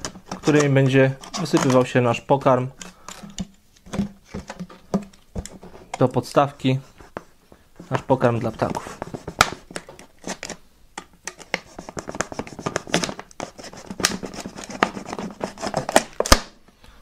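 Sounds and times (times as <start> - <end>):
knife cutting plastic: 0.0 - 1.9, 11.3 - 16.5
plastic bottle crinkling: 0.0 - 2.0.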